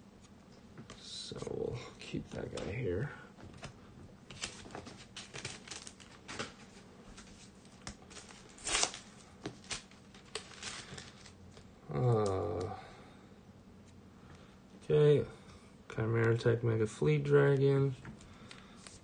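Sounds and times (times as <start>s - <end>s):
cards and packaging rustling: 3.5s - 12.4s.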